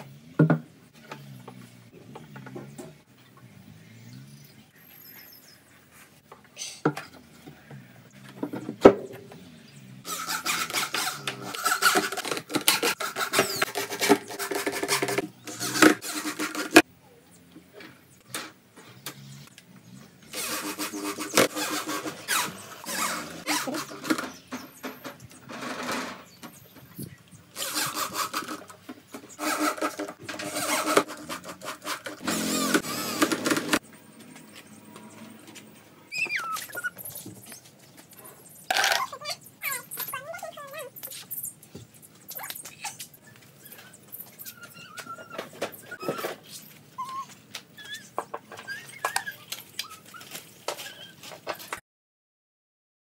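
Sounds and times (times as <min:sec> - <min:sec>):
cordless drill driving screws: 0:10.1 - 0:16.8, 0:20.3 - 0:24.4, 0:27.6 - 0:33.8.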